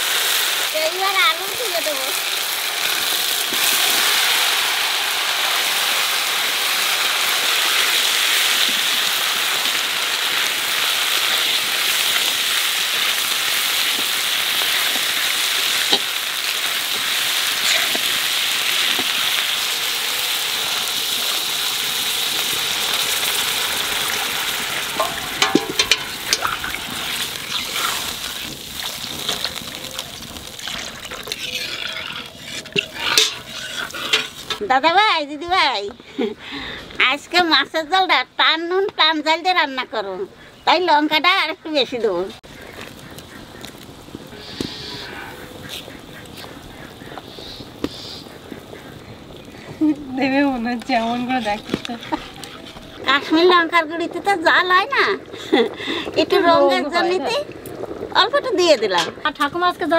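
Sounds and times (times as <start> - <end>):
potatoes sizzling in hot oil: 0.0 - 35.9, 37.0 - 59.9
water poured into pan: 2.2 - 34.6
metal spatula stirring: 24.6 - 34.6.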